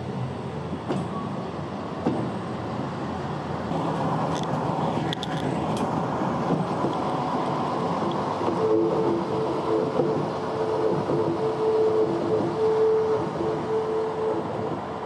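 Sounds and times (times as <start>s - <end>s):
diesel rail car engine: 0.0s - 15.0s
wheels on rails: 3.3s - 15.0s.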